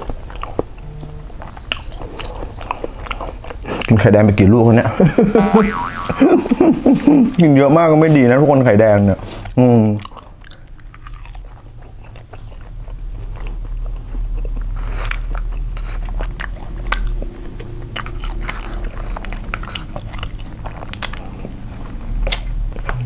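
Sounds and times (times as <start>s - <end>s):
man chewing with mouth smacks: 0.0s - 4.0s, 9.3s - 23.0s.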